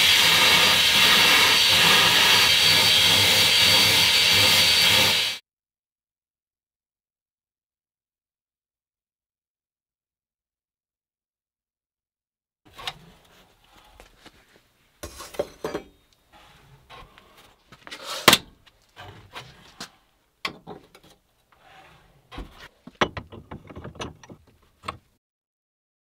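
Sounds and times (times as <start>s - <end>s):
kiln door clanking: 22.3s - 25.1s.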